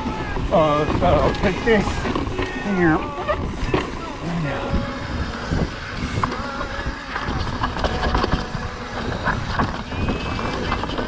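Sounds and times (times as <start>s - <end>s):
bike clattering: 0.0s - 11.0s
tyres crunching over dirt: 0.0s - 11.0s
wind noise on camera: 0.0s - 11.0s
faint squeal: 8.7s - 11.0s.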